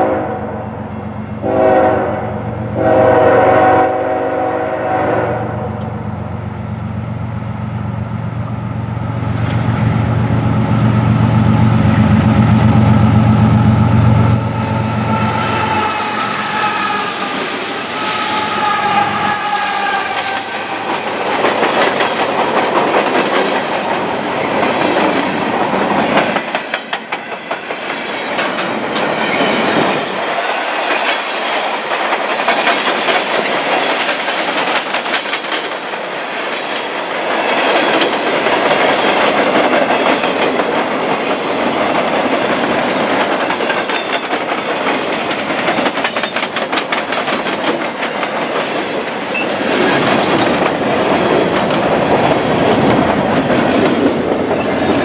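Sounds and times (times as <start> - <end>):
freight train wheels rumbling on rail: 0.0 - 55.0
wheels clacking over rail joints: 20.1 - 36.8, 37.4 - 55.0.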